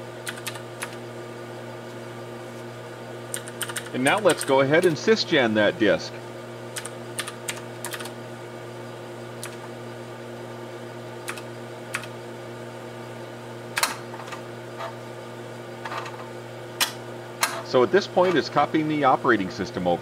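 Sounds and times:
steady low hum: 0:00.0 - 0:20.0
computer keyboard keystrokes: 0:00.2 - 0:01.0, 0:03.3 - 0:04.5, 0:06.8 - 0:08.1, 0:09.4 - 0:09.6, 0:11.3 - 0:12.1.

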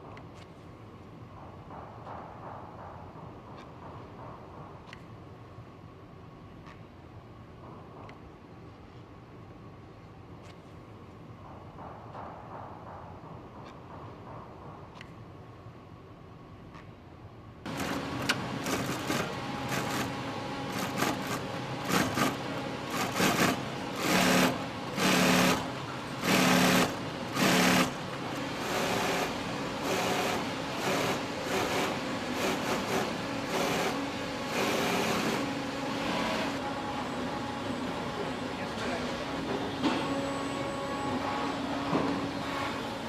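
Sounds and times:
sewing machine stitching: 0:17.7 - 0:28.0, 0:28.6 - 0:35.5.

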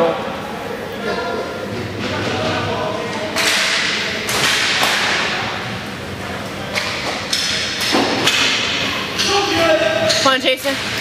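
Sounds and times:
hockey sticks and puck knocking: 0:03.4 - 0:05.4.

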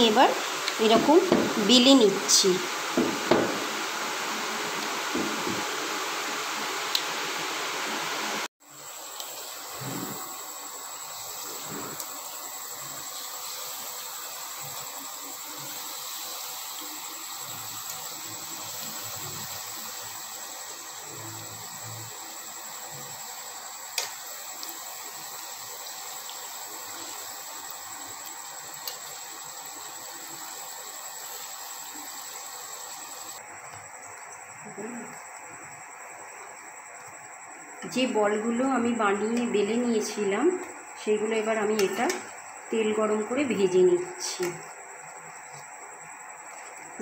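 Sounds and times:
food deep-frying in hot oil: 0:00.0 - 0:47.0.

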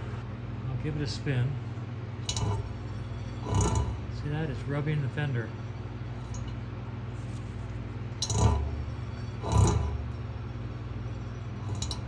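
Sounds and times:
low hum: 0:01.4 - 0:12.0.

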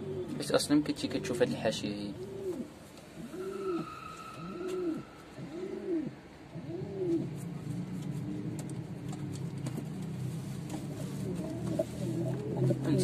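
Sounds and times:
pigeon cooing: 0:00.0 - 0:13.0.

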